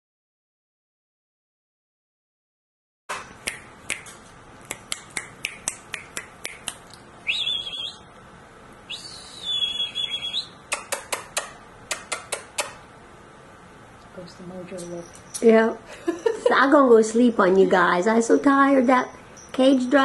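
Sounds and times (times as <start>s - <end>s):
finger snapping clicks: 3.4s - 4.1s, 4.7s - 7.0s, 10.7s - 12.8s.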